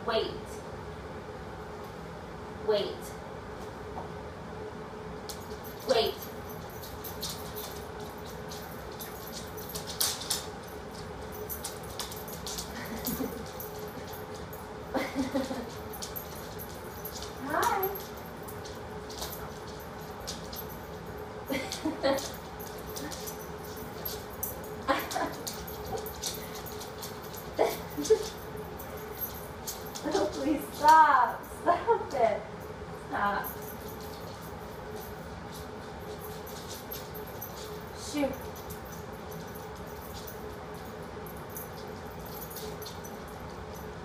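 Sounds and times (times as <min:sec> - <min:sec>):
steady background hum: 0:00.0 - 0:44.0
dog claws clicking on hardwood floor: 0:06.8 - 0:14.4, 0:15.5 - 0:20.6.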